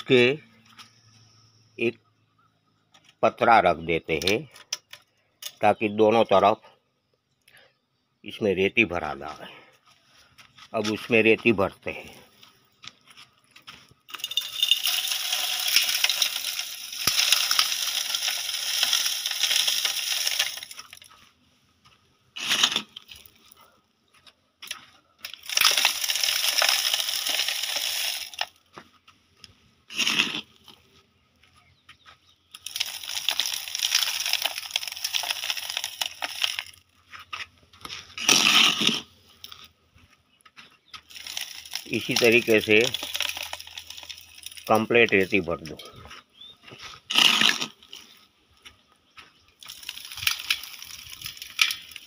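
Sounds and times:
sand pouring hiss: 14.5s - 20.8s.

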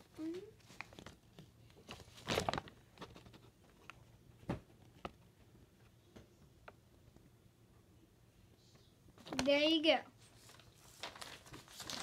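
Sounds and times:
paper rustling and crinkling: 0.1s - 4.0s, 9.2s - 12.0s.

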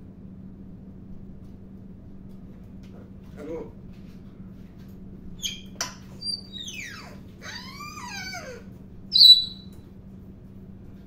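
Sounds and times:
parrot whistling and calling: 5.4s - 9.8s.

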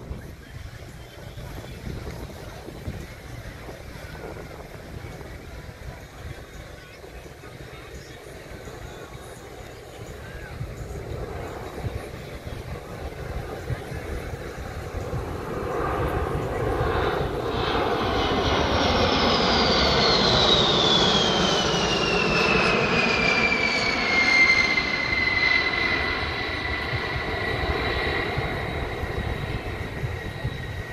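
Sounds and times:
jet bomber flying past: 0.0s - 30.9s
high whine sliding down: 17.2s - 30.9s.

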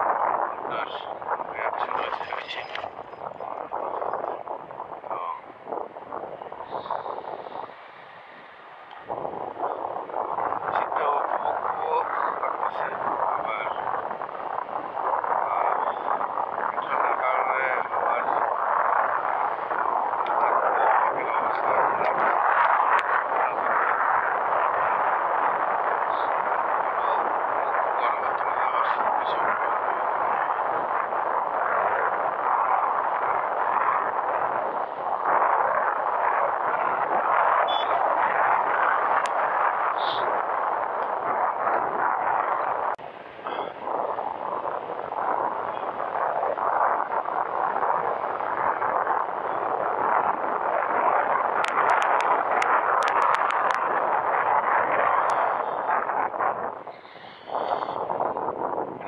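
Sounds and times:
wind and road noise: 0.0s - 59.0s.

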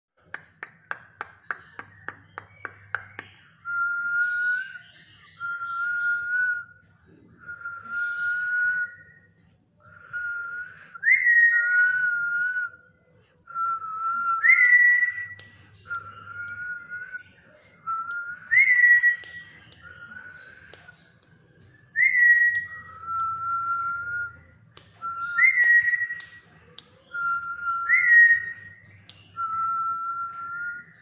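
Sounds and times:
sharp clicks: 18.0s - 29.5s
parrot whistling: 21.9s - 26.2s.

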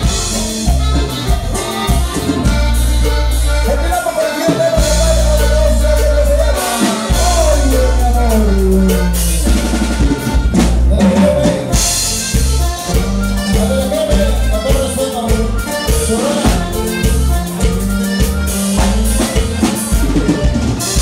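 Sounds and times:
drum kit: 0.0s - 21.0s
heavy steady bass line: 0.0s - 21.0s
person singing: 3.5s - 9.8s, 10.6s - 12.2s, 12.8s - 17.8s.

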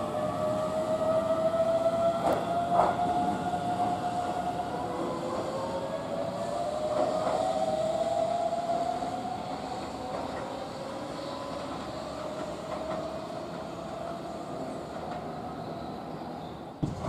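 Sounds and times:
thin steady train whine: 0.0s - 17.0s
train wheels clicking over rail joints: 11.5s - 14.1s.

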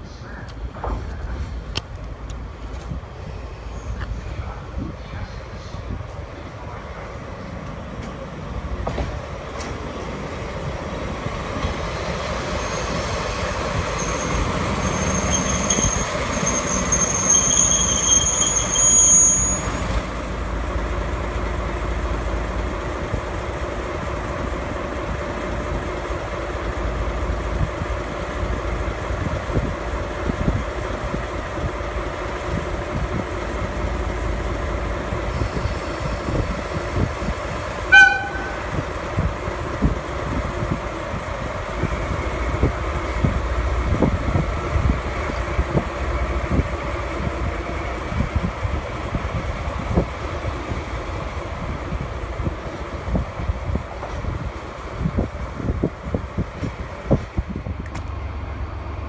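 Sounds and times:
diesel locomotive engine: 0.0s - 59.0s
brake squeal: 12.2s - 20.1s.

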